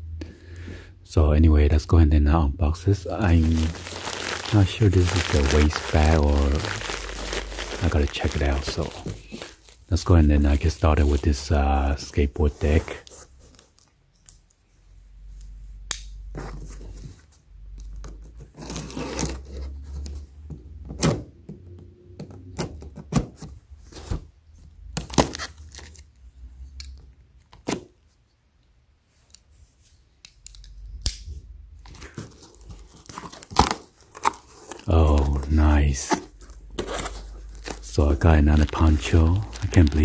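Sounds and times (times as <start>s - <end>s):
cardboard tearing and scraping: 3.2s - 9.8s, 18.4s - 19.6s, 32.0s - 40.0s.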